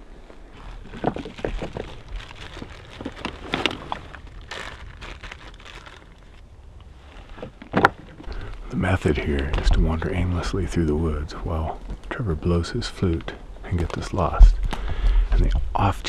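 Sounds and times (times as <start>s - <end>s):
plastic bag crinkling: 0.5s - 8.6s.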